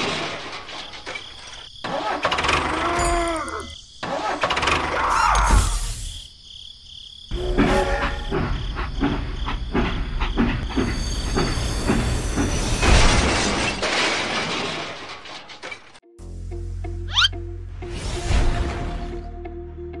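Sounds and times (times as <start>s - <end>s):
train wheels clacking on rails: 7.6s - 13.1s.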